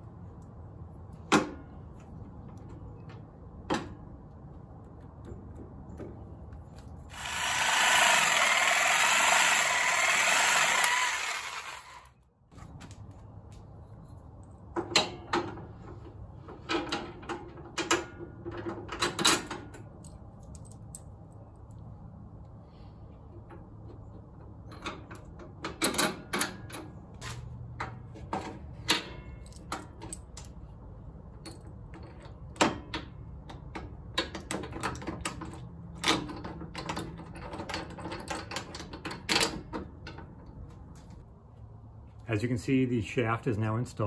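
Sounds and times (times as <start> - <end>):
reciprocating saw cutting: 7.1 - 12.1.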